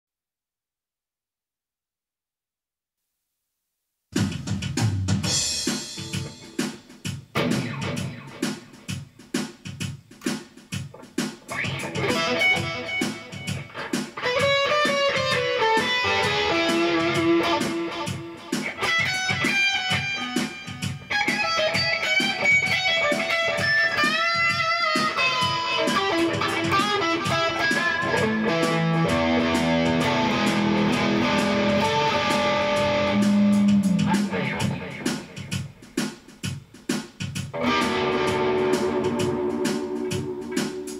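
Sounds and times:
rock music with electric guitar: 5.7 - 9.1, 10.8 - 35.8, 37.5 - 40.9.

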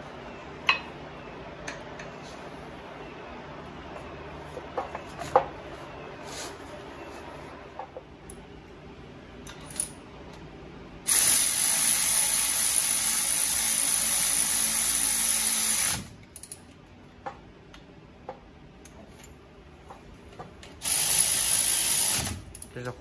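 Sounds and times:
power ratchet running: 11.1 - 16.1, 20.8 - 22.5.

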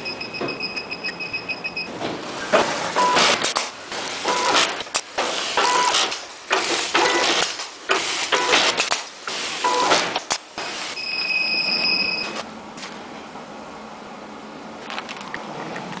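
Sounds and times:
short beep: 0.0 - 2.0, 11.0 - 12.4
filling machine running: 0.0 - 12.4.

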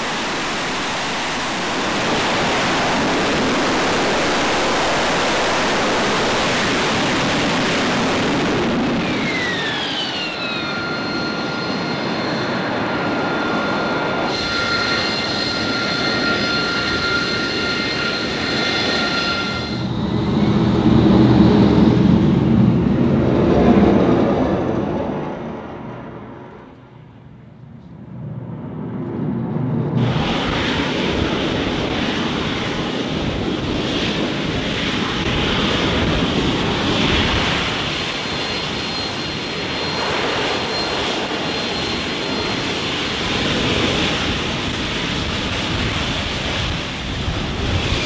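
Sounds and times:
high turbine whine: 0.0 - 48.0
jet engine roaring: 0.0 - 48.0
deep rumble: 18.4 - 37.8.

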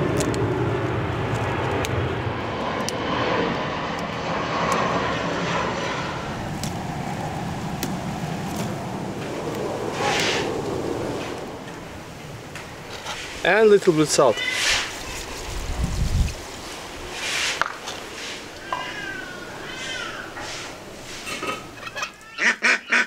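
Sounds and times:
low engine drone: 0.0 - 13.5.

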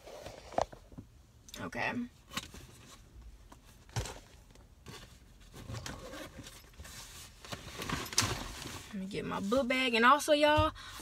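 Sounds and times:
rustling and handling noises: 2.2 - 9.9.

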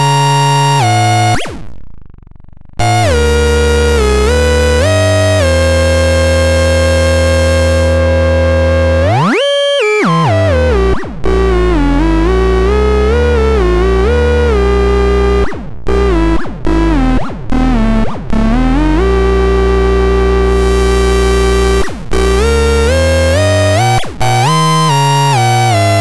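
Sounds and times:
synthesizer electronic tone: 2.8 - 8.2, 15.3 - 25.9.

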